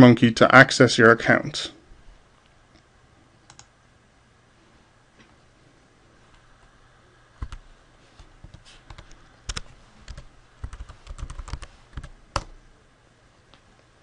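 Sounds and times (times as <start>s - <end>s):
typing on computer keyboard: 8.9s - 12.6s.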